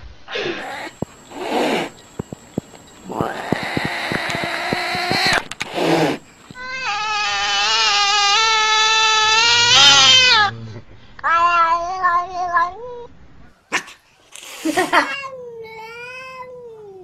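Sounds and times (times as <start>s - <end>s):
cat meowing: 3.1s - 10.5s.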